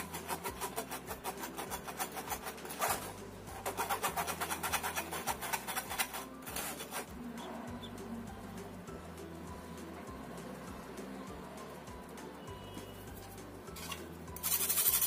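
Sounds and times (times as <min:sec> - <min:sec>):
flour sifting through sieve: 0:00.0 - 0:07.2, 0:13.8 - 0:15.0.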